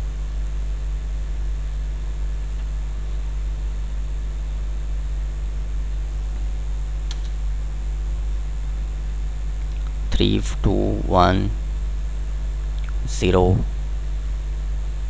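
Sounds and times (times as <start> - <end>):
low electrical hum: 0.0 - 15.0
faint short click: 7.1 - 7.4.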